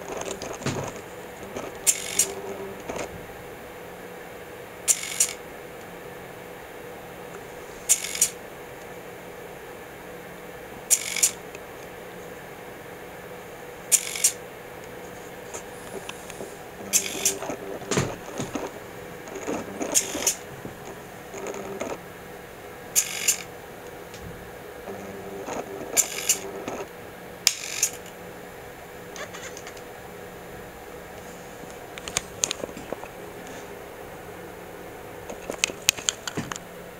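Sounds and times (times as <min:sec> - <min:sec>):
servo mechanical whirring: 0:00.0 - 0:03.3, 0:15.6 - 0:22.0, 0:23.0 - 0:23.5, 0:25.5 - 0:26.9
faint steady hum: 0:00.0 - 0:36.9.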